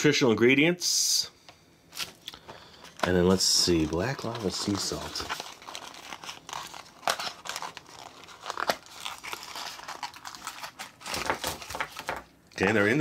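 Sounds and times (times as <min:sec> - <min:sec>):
candy packaging rustling and crinkling: 0:01.9 - 0:13.0.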